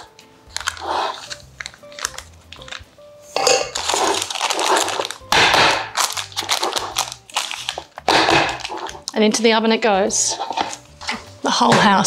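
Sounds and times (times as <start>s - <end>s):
scraping in metal loaf tin: 10.1s - 12.0s.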